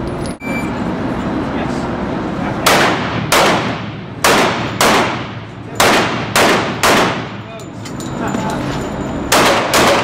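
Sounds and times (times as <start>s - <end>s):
pistol shots echoing indoors: 2.7s - 7.3s, 9.3s - 10.0s.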